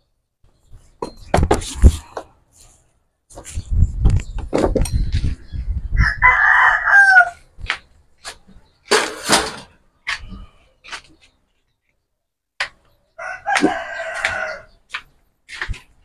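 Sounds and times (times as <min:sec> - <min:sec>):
rooster crowing: 0:06.0 - 0:07.4, 0:13.2 - 0:14.7.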